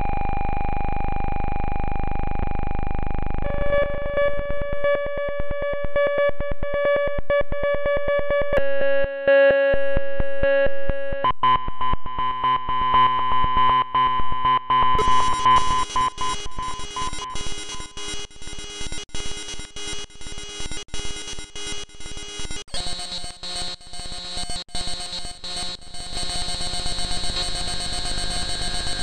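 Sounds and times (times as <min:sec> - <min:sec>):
synthesised electronic tones: 0:14.8 - 0:22.6.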